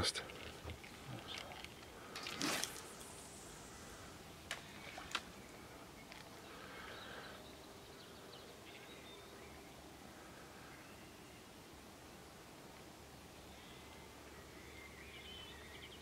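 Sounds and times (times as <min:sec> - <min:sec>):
faint birdsong: 0:00.0 - 0:16.0
fishing rod swishing: 0:02.2 - 0:03.2.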